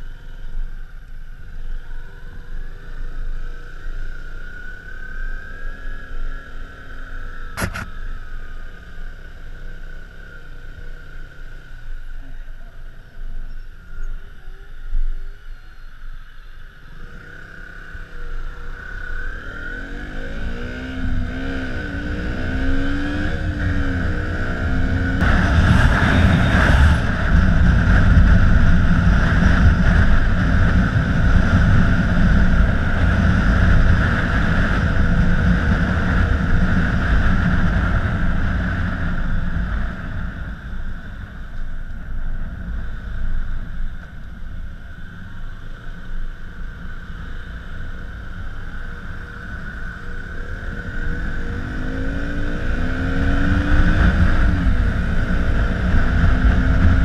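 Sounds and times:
motorcycle engine: 0.0 - 57.0
wind rushing over microphone: 19.4 - 45.4, 46.4 - 57.0.

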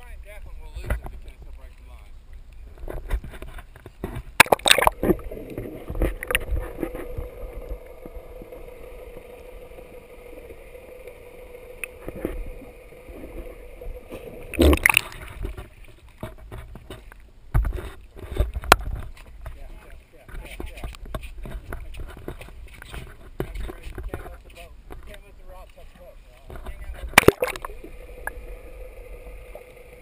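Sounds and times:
water splashing: 3.4 - 17.2, 26.7 - 30.0
waves washing: 4.3 - 16.2, 26.0 - 30.0
muffled underwater hum: 4.6 - 15.6, 26.7 - 30.0.

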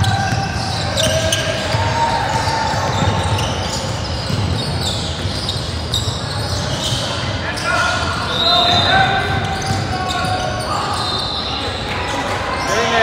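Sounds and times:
basketball bouncing: 0.0 - 6.7, 8.7 - 10.5
shoe squeaks: 0.0 - 13.0
voices of players and spectators: 0.0 - 13.0.

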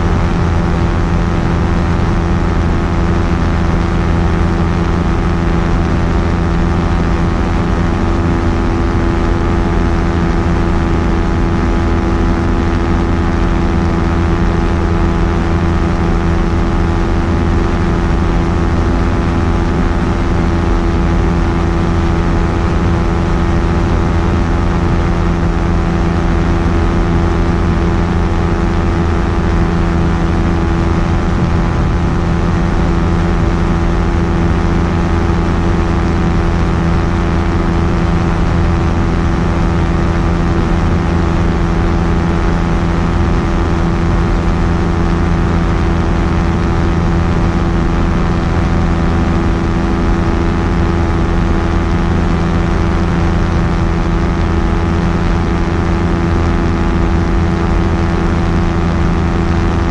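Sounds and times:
ultralight engine and propeller: 0.0 - 59.9.

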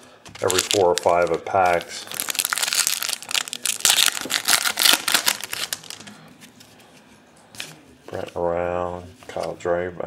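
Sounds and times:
foil wrapper crinkling and tearing: 0.4 - 6.1.

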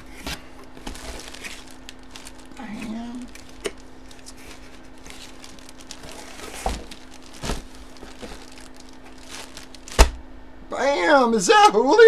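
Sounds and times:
plastic bag crinkling: 0.7 - 10.2.

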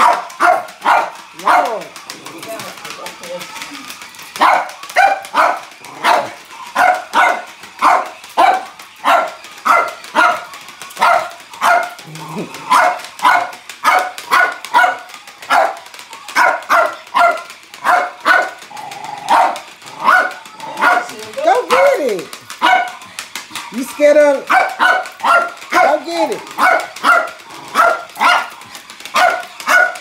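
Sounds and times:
small dog barking: 0.0 - 1.7, 4.4 - 10.4, 11.0 - 11.9, 12.7 - 15.8, 16.4 - 18.6, 19.3 - 21.1, 22.6 - 23.0, 24.5 - 25.9, 26.6 - 28.5, 29.2 - 30.0.

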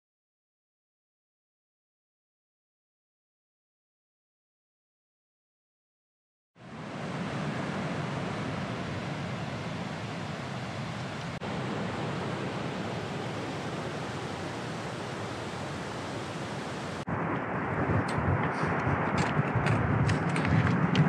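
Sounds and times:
stream rushing over rocks: 6.6 - 17.1
wind buffeting microphone: 6.6 - 21.0.

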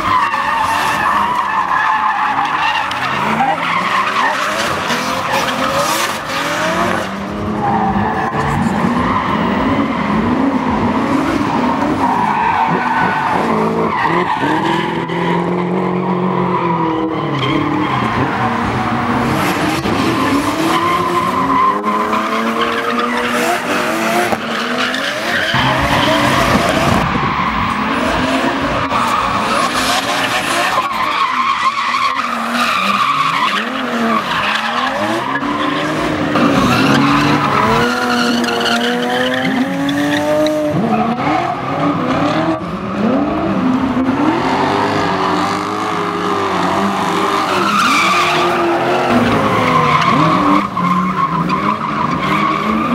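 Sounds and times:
car engines revving: 0.0 - 52.9
tyres squealing: 46.2 - 52.9.

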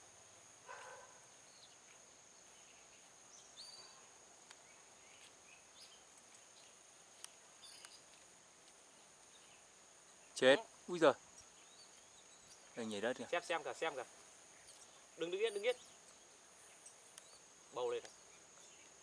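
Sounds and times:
faint bird chirps: 0.0 - 19.0.

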